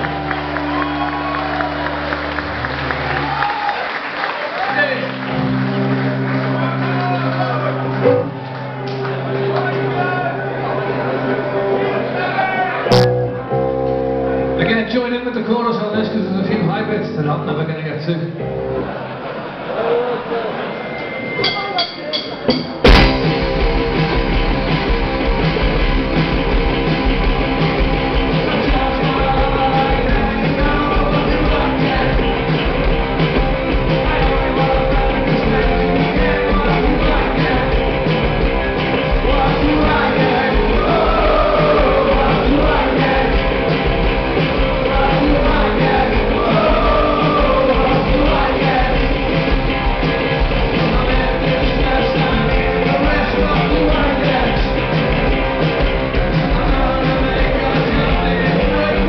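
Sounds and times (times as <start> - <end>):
live rock band playing: 0.0 - 3.6, 4.2 - 19.6, 21.0 - 59.0
man singing: 28.3 - 32.8, 33.8 - 38.2, 39.0 - 44.0, 44.6 - 49.5, 50.7 - 55.2, 56.2 - 59.0.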